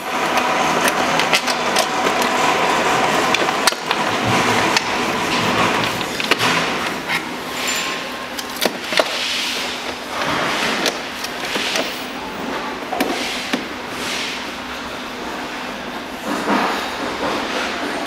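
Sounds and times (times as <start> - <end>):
hard plastic knocks and scraping: 3.2 - 7.3.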